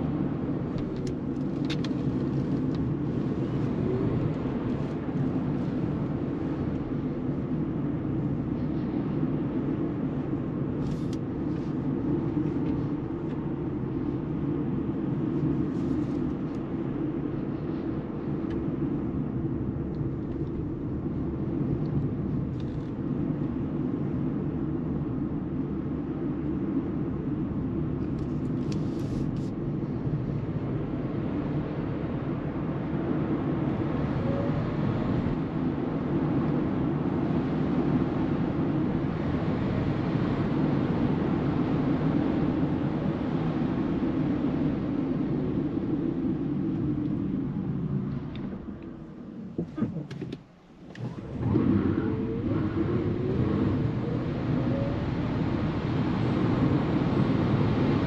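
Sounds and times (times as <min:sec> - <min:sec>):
tyre and road noise: 0:00.0 - 0:08.0, 0:45.2 - 0:58.0
wind: 0:00.0 - 0:58.0.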